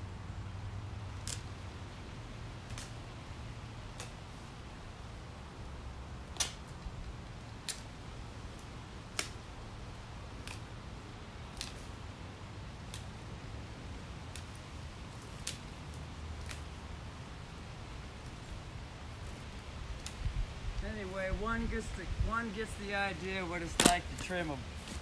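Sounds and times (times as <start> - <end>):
loppers snipping branches: 1.1 - 1.6, 2.6 - 3.1, 3.9 - 4.3, 6.3 - 7.9, 8.5 - 9.5, 10.3 - 10.8, 11.4 - 12.0, 12.8 - 13.3, 14.2 - 16.8, 18.2 - 20.8, 21.6 - 25.0.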